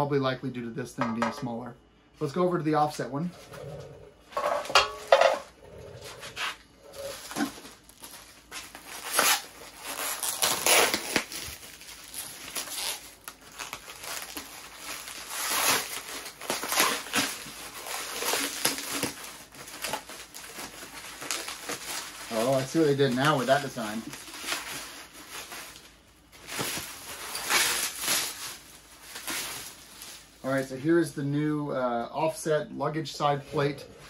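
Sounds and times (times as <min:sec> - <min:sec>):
plastic packaging crinkling: 0:06.3 - 0:30.7.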